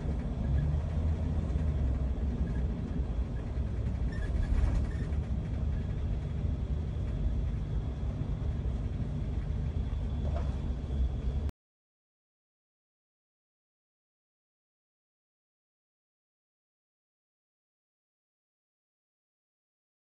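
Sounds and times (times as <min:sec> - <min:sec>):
car engine and tyre noise: 0:00.0 - 0:11.5.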